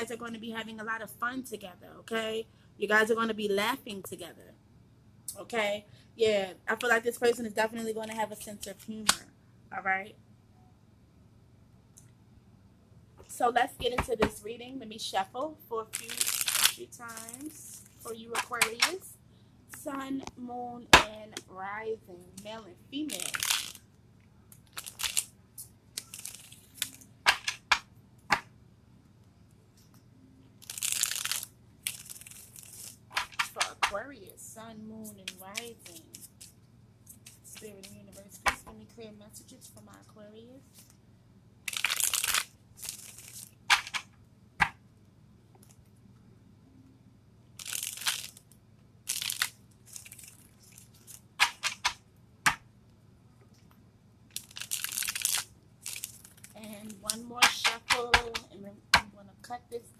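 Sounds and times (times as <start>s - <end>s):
cards being shuffled: 15.9s - 18.9s, 23.1s - 23.8s, 24.6s - 25.3s, 26.0s - 28.5s, 30.6s - 34.0s, 35.0s - 38.7s, 41.7s - 44.8s, 47.6s - 48.4s, 49.1s - 52.6s, 54.4s - 58.4s.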